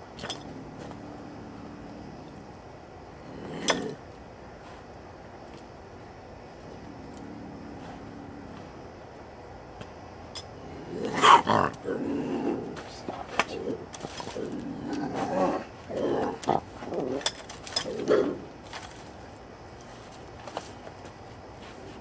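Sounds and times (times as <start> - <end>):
wild cat growling: 0.2 - 4.1, 6.6 - 8.8, 10.6 - 18.6.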